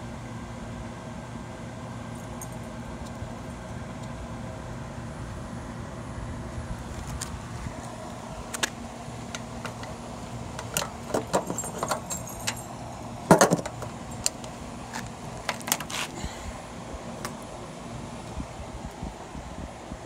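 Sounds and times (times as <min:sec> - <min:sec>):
generator engine running: 0:00.0 - 0:20.0
sharp clicks and metallic rattles: 0:08.5 - 0:16.0
clunk: 0:10.6 - 0:12.6, 0:13.3 - 0:13.9.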